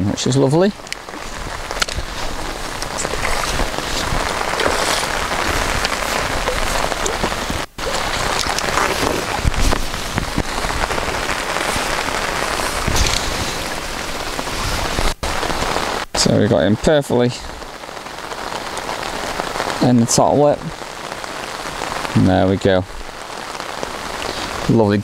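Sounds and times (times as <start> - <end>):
heavy rain falling on a lake: 0.0 - 25.0.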